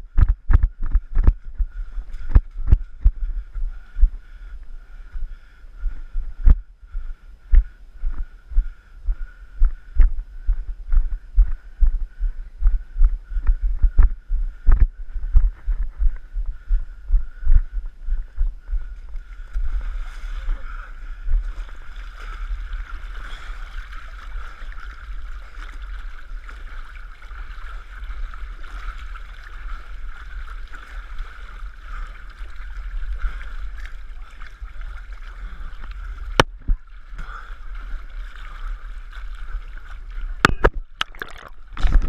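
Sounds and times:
low rumble: 0:00.0 - 0:23.2
muddy water sloshing: 0:18.8 - 0:42.0.

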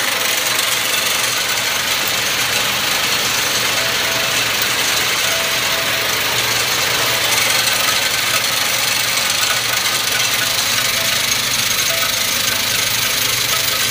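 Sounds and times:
tumbler rattling brass cases: 0:00.8 - 0:13.9.

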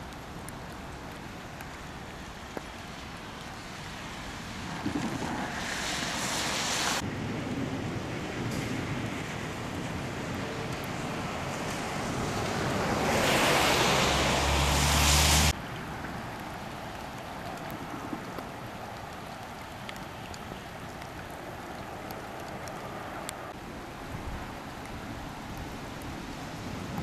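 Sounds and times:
rain: 0:00.0 - 0:27.0
wind buffeting microphone: 0:04.4 - 0:14.6, 0:21.2 - 0:27.0
drip ticks: 0:16.3 - 0:23.4.

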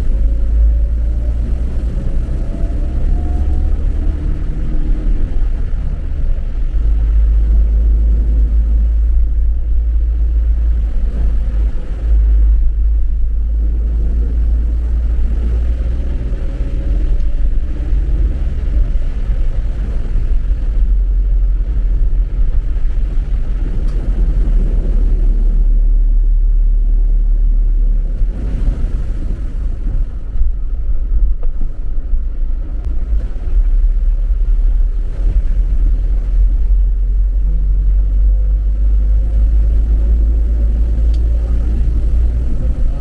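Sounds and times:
car driving through water rumble: 0:00.0 - 0:43.0
car engine revving: 0:00.0 - 0:43.0.

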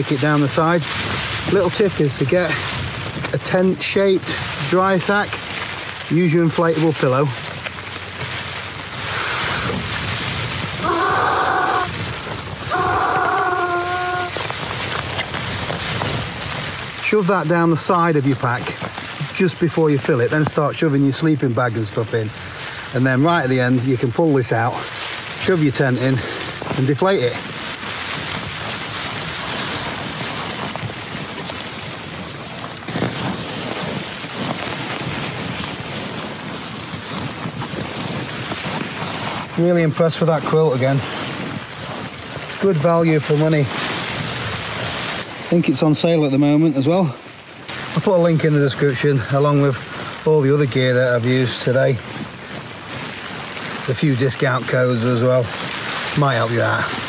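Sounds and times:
rain and wind on a tent: 0:00.0 - 0:57.0
breaths blowing into pillow valve: 0:09.0 - 0:10.0, 0:12.6 - 0:14.4.

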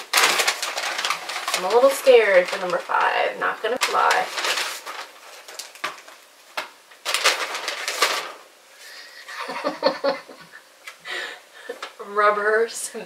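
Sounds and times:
paper rustling and crinkling: 0:00.0 - 0:09.0.

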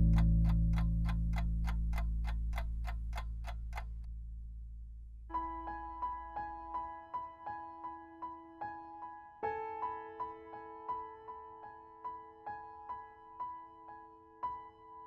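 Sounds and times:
piano melody: 0:00.0 - 0:03.2, 0:05.3 - 0:15.0
clock-like ticking: 0:00.0 - 0:04.1.

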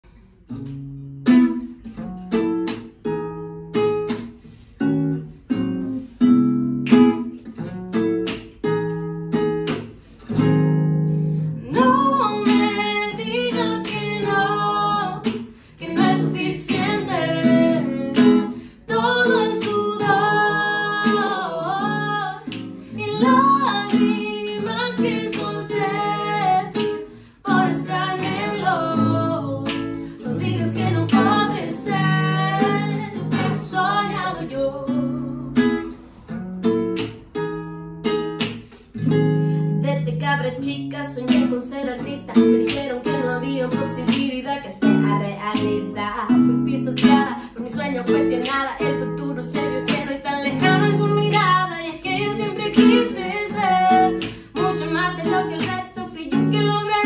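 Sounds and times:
acoustic guitar: 0:00.0 - 0:57.0
woman and man singing: 0:11.6 - 0:35.5, 0:39.9 - 0:57.0.

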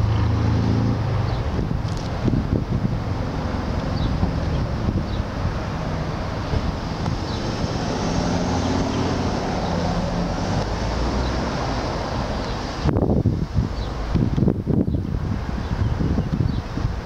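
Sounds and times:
low engine hum: 0:00.0 - 0:17.0
wind buffeting microphone: 0:00.0 - 0:17.0.

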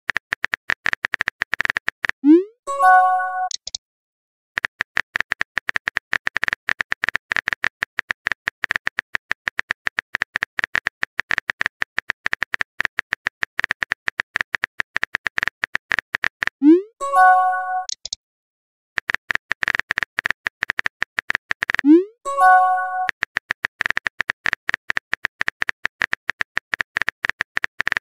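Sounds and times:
synthetic keyboard clicks: 0:00.1 - 0:03.8, 0:04.6 - 0:18.2, 0:19.0 - 0:28.0.

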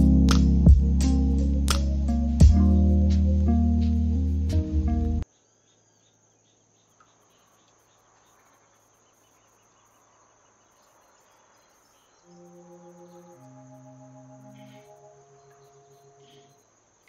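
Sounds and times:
bass-heavy music: 0:00.0 - 0:05.2
soft music of long held notes: 0:00.0 - 0:05.2, 0:12.2 - 0:16.6.

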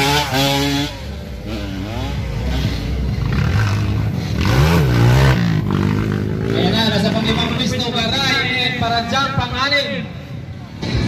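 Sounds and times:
dirt bike engines: 0:00.0 - 0:11.0.

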